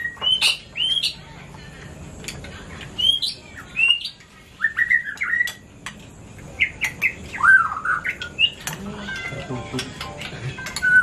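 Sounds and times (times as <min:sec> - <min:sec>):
bird chirping: 0:00.0 - 0:01.2, 0:03.0 - 0:05.6, 0:06.5 - 0:09.4, 0:10.6 - 0:11.0
spoons clinking on plates: 0:08.5 - 0:11.0.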